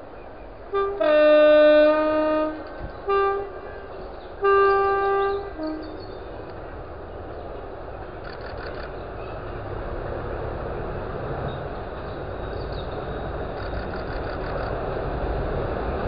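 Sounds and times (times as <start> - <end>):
freight train rumble: 0.0 - 16.0
two-tone locomotive horn blasts: 0.7 - 6.4.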